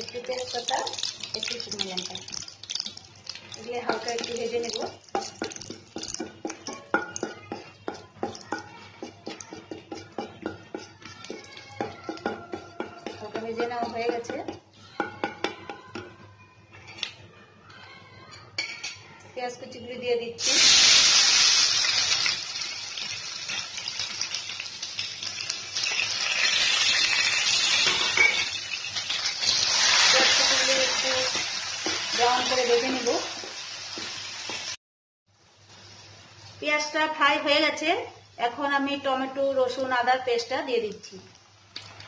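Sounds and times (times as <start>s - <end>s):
spices frying in oil: 0.0s - 15.0s, 20.4s - 34.8s
wooden spatula tapping steel pan: 0.0s - 16.2s.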